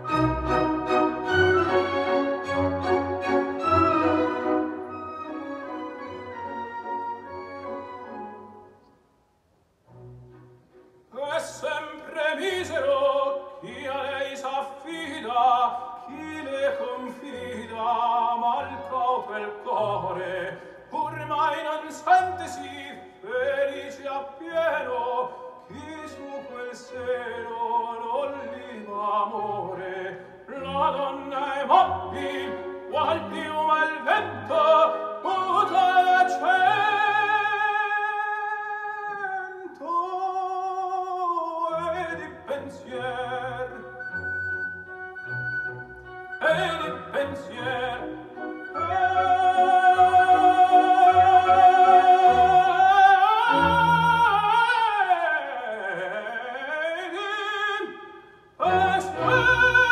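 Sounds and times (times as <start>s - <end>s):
operatic singing over speakers: 11.1s - 44.0s, 46.4s - 59.9s.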